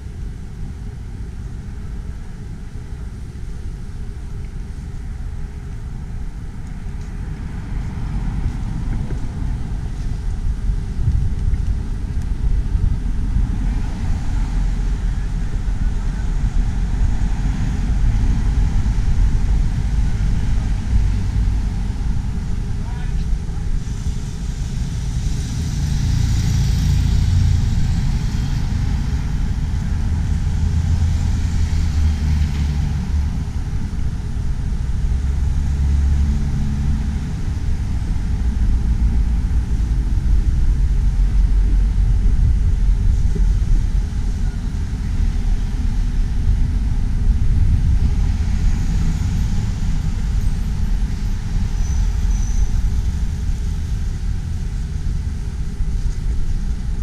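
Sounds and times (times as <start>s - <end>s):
car engines rumbling: 0.0s - 57.0s.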